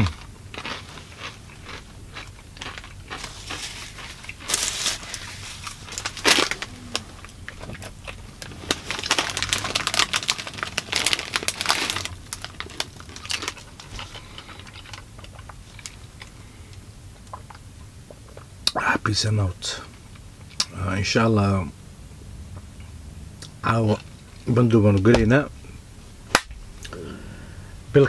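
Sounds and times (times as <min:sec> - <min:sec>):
crisp packet crinkling: 0:02.6 - 0:07.0, 0:07.6 - 0:16.2.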